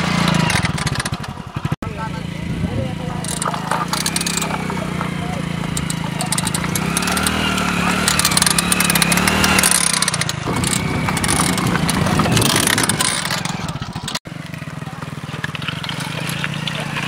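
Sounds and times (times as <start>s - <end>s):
motorcycle engine revving: 0.0s - 17.0s
rapid clatter of spike clicks: 5.7s - 7.4s.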